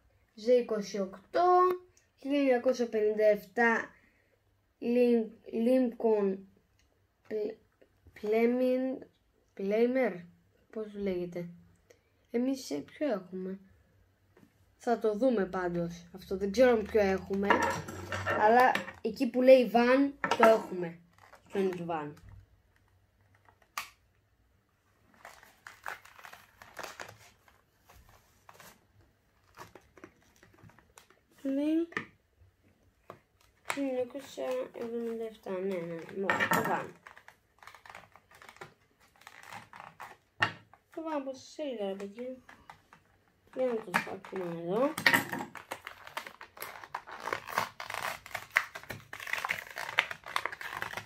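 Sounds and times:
plastic packaging crinkling: 0:21.0 - 0:23.9, 0:25.0 - 0:31.5, 0:33.4 - 0:41.0, 0:42.1 - 0:51.0.

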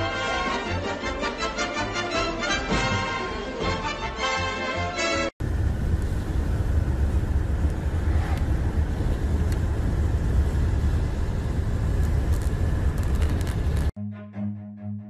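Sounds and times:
car road noise: 0:05.4 - 0:13.9
wind rumble on microphone: 0:05.4 - 0:13.9.

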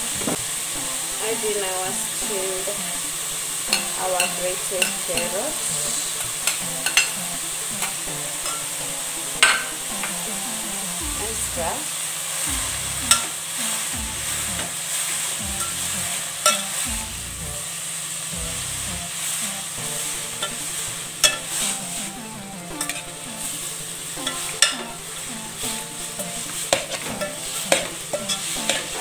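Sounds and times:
vegetables sizzling in a pot: 0:00.0 - 0:29.0
spoon clinking against metal pot: 0:03.7 - 0:05.5, 0:06.2 - 0:08.7, 0:09.4 - 0:10.2, 0:13.1 - 0:13.3, 0:16.4 - 0:16.8, 0:21.2 - 0:21.7, 0:22.8 - 0:23.1, 0:24.2 - 0:24.9, 0:26.2 - 0:29.0.

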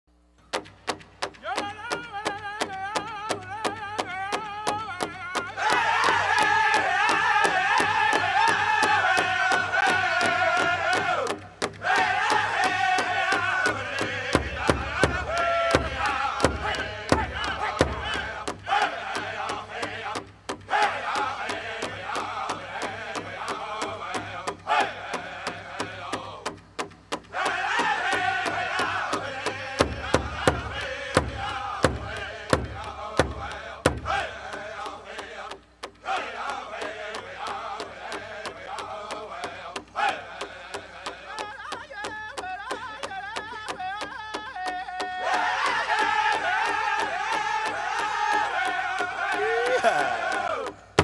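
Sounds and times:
big drum beating: 0:00.9 - 0:35.6
men chanting together: 0:04.8 - 0:26.6, 0:27.3 - 0:41.6, 0:45.1 - 0:50.8.

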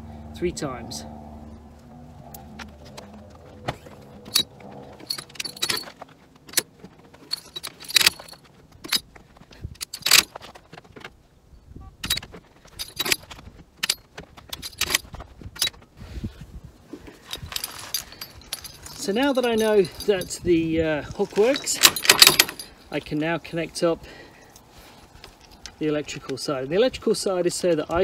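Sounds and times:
metal hook jangling clicks: 0:04.2 - 0:06.7, 0:07.3 - 0:09.0, 0:09.8 - 0:10.3, 0:12.0 - 0:15.8, 0:17.2 - 0:20.5, 0:21.1 - 0:22.9, 0:24.6 - 0:25.8.

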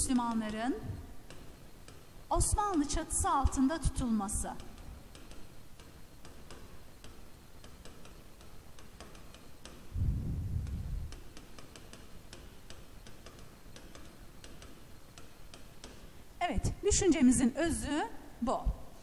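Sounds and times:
low rumble: 0:10.0 - 0:11.1.

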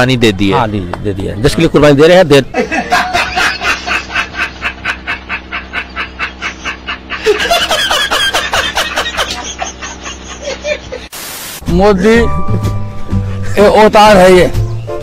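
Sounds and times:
man laughing hard: 0:02.5 - 0:11.1.

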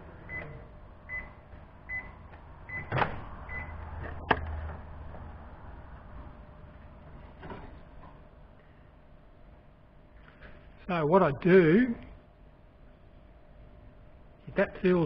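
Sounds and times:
microwave oven beeping: 0:00.0 - 0:03.9.

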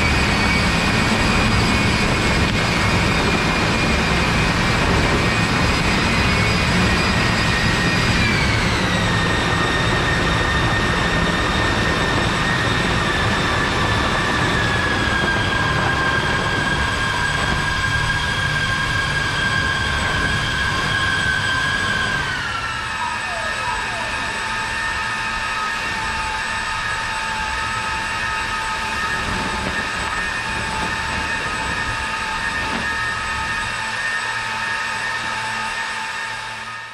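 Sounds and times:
electric fans rushing and whining: 0:00.0 - 0:36.9.

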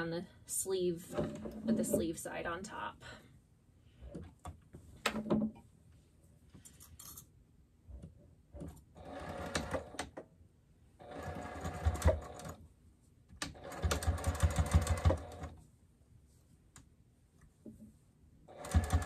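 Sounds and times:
electric sewing machine stitching: 0:09.0 - 0:10.1, 0:11.0 - 0:12.6, 0:13.4 - 0:15.5, 0:18.5 - 0:19.0.

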